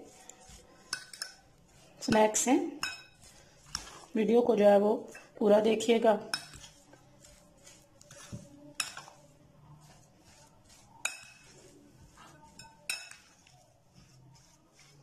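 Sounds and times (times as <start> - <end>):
spoon scraping thick mixture: 0.0 - 15.0
spoon clinking against glass bowl: 0.8 - 1.5, 2.1 - 3.9, 6.3 - 6.8, 8.1 - 9.2, 11.0 - 11.6, 12.3 - 13.6.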